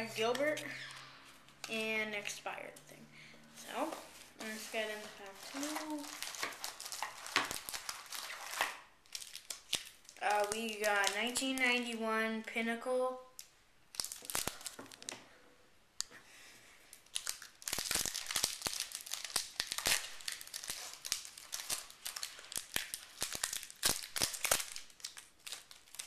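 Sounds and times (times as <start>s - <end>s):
card pack wrapper crinkling and tearing: 4.4s - 11.8s, 13.4s - 15.2s, 17.0s - 26.0s.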